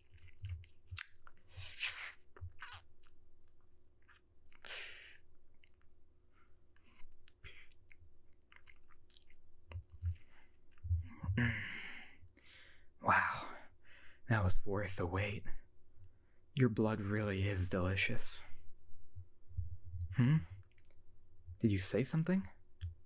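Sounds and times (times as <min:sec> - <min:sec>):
wet mouth clicks and smacks: 0:00.1 - 0:01.4, 0:05.6 - 0:05.9, 0:07.2 - 0:10.8
mouth sucking sounds: 0:01.0 - 0:02.8.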